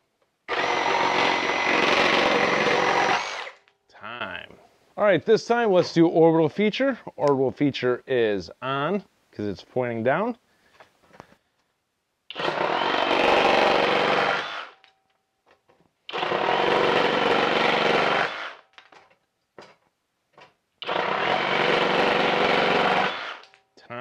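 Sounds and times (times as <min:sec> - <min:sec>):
reciprocating saw cutting wood: 0:00.5 - 0:03.6, 0:12.3 - 0:14.8.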